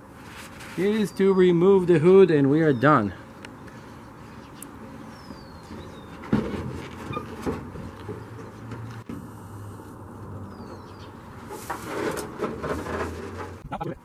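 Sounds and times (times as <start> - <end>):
scraping and rustling: 0.1 - 1.0, 5.6 - 9.2, 11.3 - 13.6
bird chirp: 0.8 - 6.4, 10.4 - 11.2.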